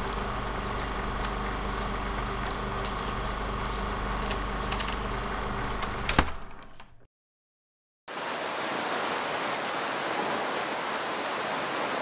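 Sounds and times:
mechanical hum: 0.0s - 7.1s.

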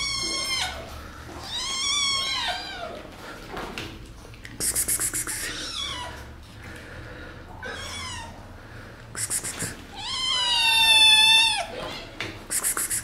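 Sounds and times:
kittens meowing: 0.0s - 3.1s, 4.8s - 6.3s, 7.6s - 8.4s, 9.3s - 12.2s
fast run of hissy ticks: 4.5s - 5.5s, 9.2s - 9.8s, 12.5s - 13.0s.

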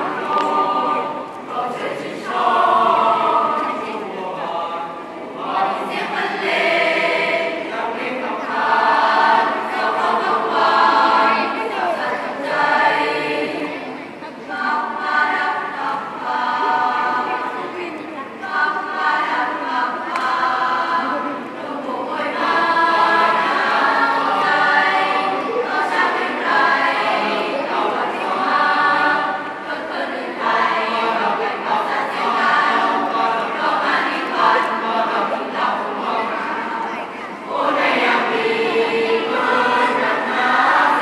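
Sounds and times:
youth choir singing in harmony: 0.0s - 41.0s.

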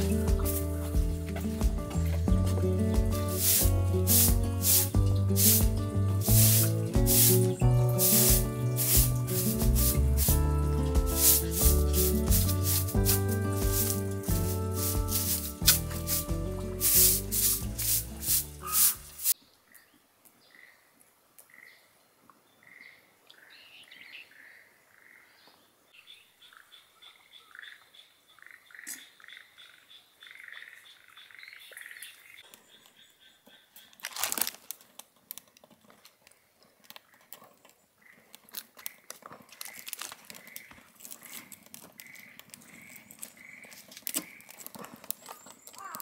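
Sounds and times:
thin high trill: 6.4s - 19.3s
frogs croaking: 26.3s - 34.0s, 38.0s - 44.6s.

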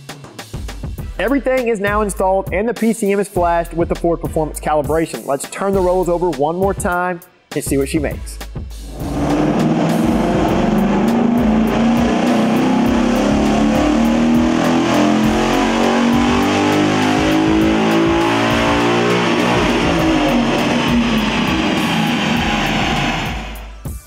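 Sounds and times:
car engine revving hard: 8.7s - 23.8s
electric guitar rock music: 9.1s - 24.0s.

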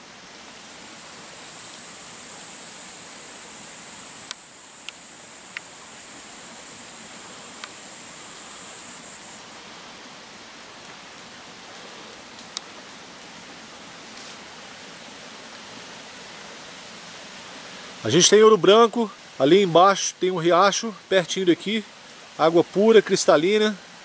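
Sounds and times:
wet forest hiss: 0.0s - 24.0s.

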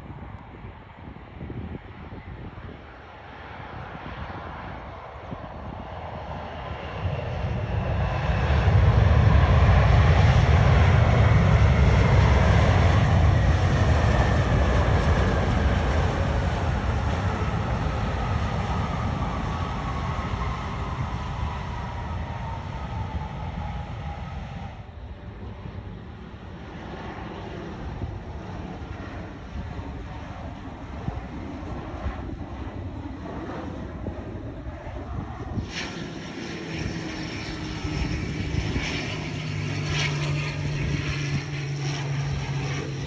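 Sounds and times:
deep jet roar: 3.3s - 43.0s
falling jet whine: 35.2s - 43.0s.

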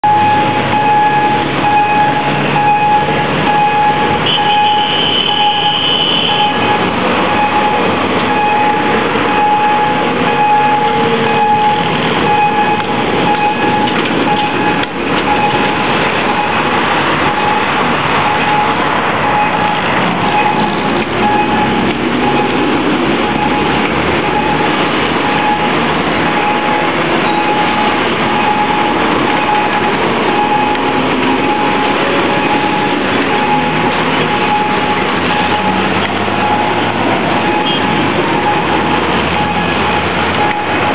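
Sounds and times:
train passing: 6.4s - 40.9s
level crossing pulsed warning tone: 17.3s - 40.9s.

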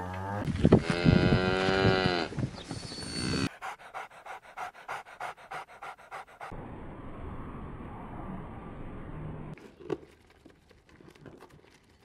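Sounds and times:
dog panting: 3.4s - 6.6s.

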